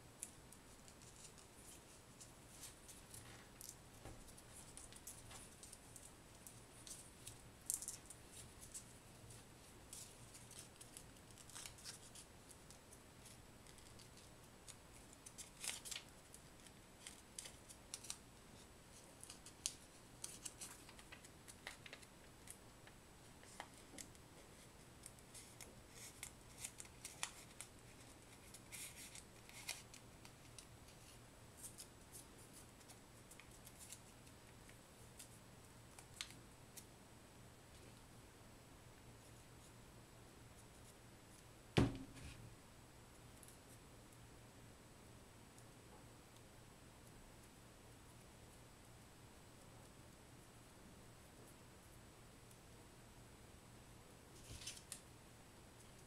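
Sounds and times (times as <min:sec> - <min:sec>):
paper crinkling and rustling: 0:00.8 - 0:18.2, 0:18.9 - 0:22.6, 0:23.4 - 0:35.4, 0:54.4 - 0:55.0.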